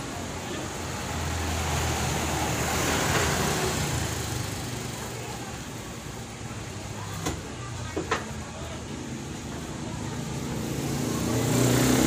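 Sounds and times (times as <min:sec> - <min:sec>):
vehicle passing by: 0:00.0 - 0:05.3, 0:09.5 - 0:12.0.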